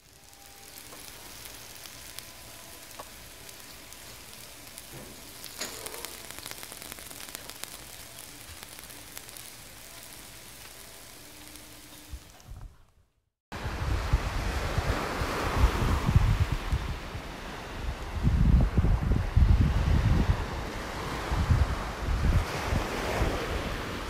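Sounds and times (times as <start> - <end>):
steak sizzling on hot plate: 0.0 - 12.5.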